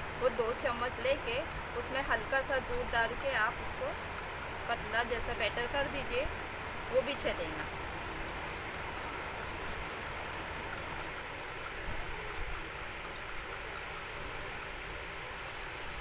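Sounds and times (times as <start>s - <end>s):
fork clicking against bowl: 0.0s - 15.6s.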